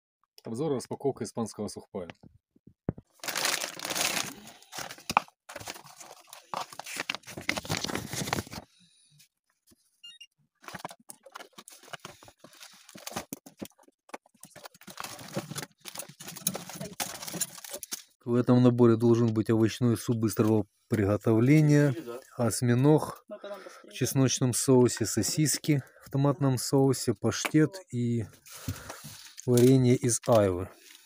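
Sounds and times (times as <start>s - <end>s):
packaging crinkling and rustling: 3.1s - 8.7s, 10.6s - 18.2s, 28.6s - 31.0s.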